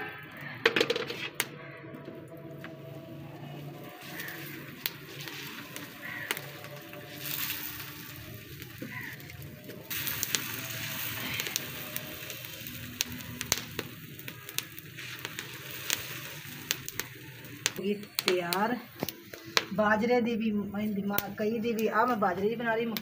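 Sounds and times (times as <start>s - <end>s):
sharp crackles and pops: 0.0s - 23.0s
flatbread sizzling on hot iron: 3.6s - 20.1s.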